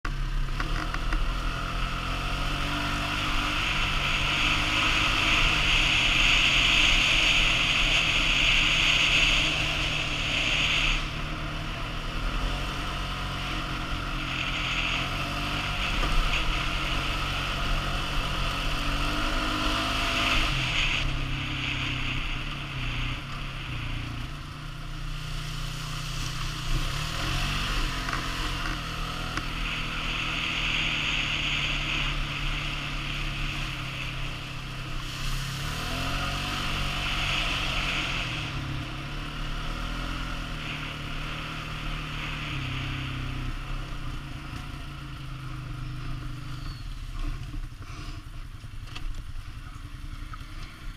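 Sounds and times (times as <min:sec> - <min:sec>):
quad bike engine revving: 0:00.1 - 0:48.2
high rushing noise: 0:01.7 - 0:44.5.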